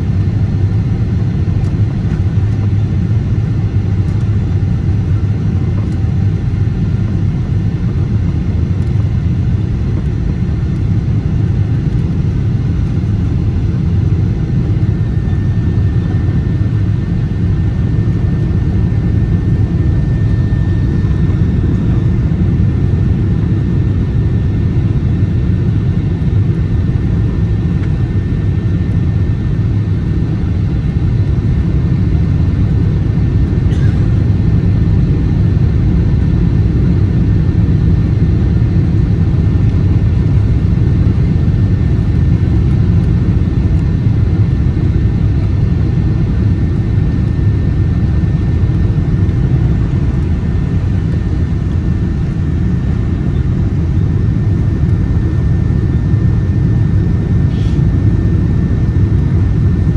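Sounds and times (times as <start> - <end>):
jet engine and airflow rumble: 0.0 - 59.9
faint high whine: 47.2 - 57.8.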